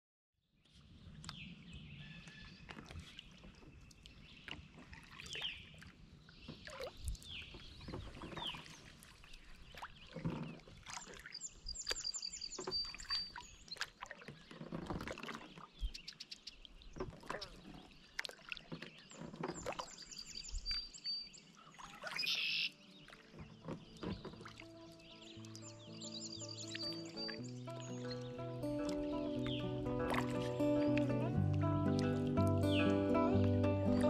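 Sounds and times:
birds chirping: 0.7s - 34.0s
kayak paddle swishing through water: 0.7s - 34.0s
water dripping: 9.7s - 14.4s, 26.6s - 34.0s.

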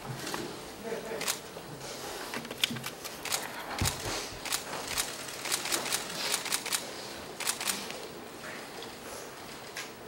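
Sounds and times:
camera shutters clicking: 2.6s - 8.0s.

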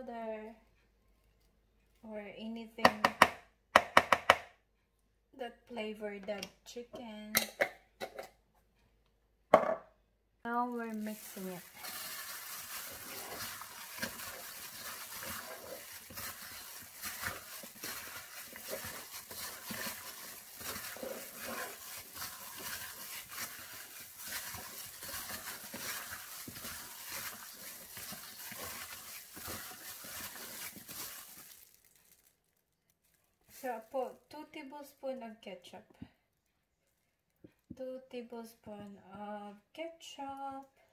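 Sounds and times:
hand mixing wet meat in bowl: 10.5s - 32.2s, 33.5s - 34.1s
plastic glove rustling: 10.5s - 34.2s.

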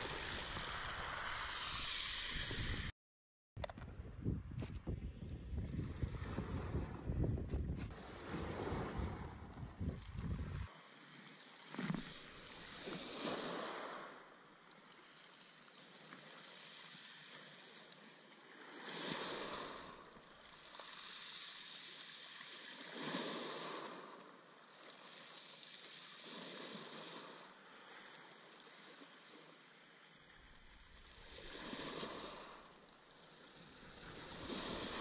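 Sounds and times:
waves breaking on shingle beach: 0.0s - 2.8s, 10.7s - 35.0s.

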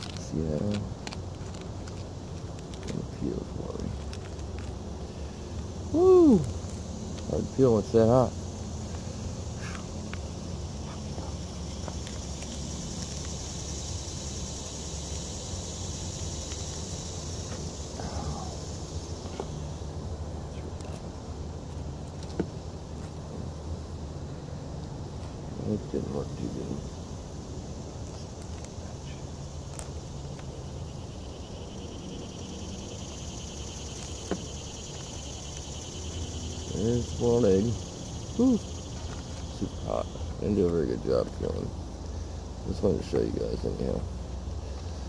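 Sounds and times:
insects droning: 0.0s - 45.0s.

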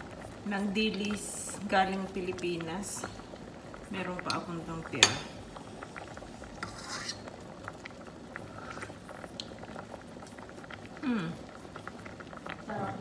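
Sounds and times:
light ticks from simmering pot: 0.1s - 8.4s, 9.3s - 12.7s
spoon scraping pot: 6.5s - 7.4s.

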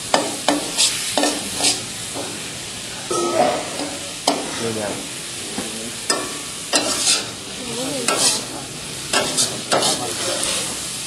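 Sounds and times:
noodles sizzling in oil: 0.0s - 3.1s, 4.0s - 11.0s
metal spatula scraping wok: 6.8s - 7.3s, 8.1s - 8.5s.

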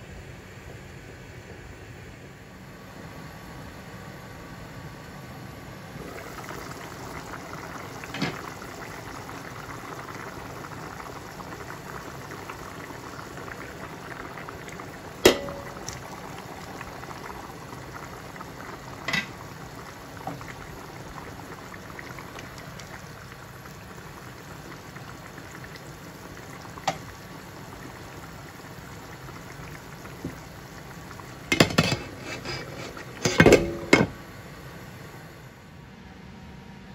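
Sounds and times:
curry bubbling in a pan: 6.0s - 33.9s.

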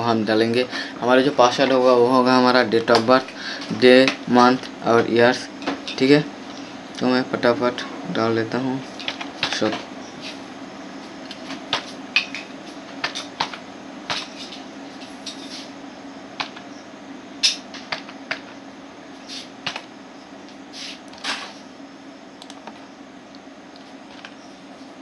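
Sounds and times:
steady low hum: 0.0s - 25.0s
keyboard keys clicking: 22.4s - 22.8s.

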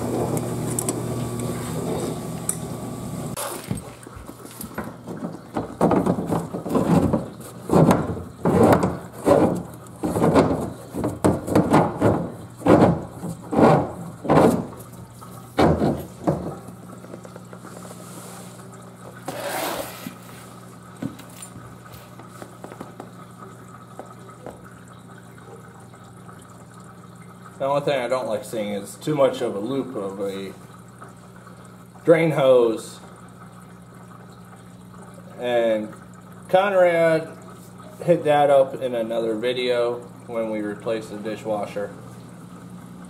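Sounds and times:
machine hum: 0.0s - 3.4s
dishwasher water sloshing: 0.0s - 43.0s.

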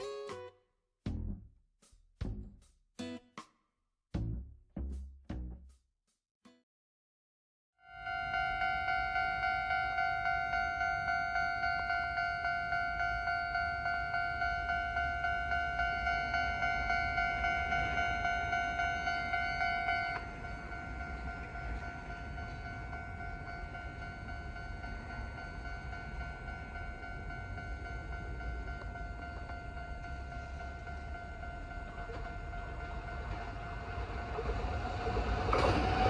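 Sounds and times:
level crossing alarm ringing: 7.8s - 36.0s.

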